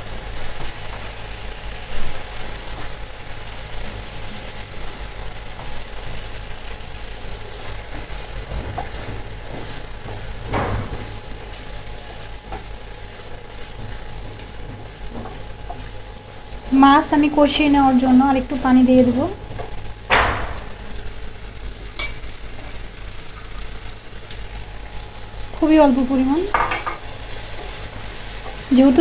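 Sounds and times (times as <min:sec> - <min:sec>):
fish sizzling in a pan: 0:00.0 - 0:29.0
wooden spatula knocking on pan: 0:07.9 - 0:11.1, 0:13.8 - 0:15.8.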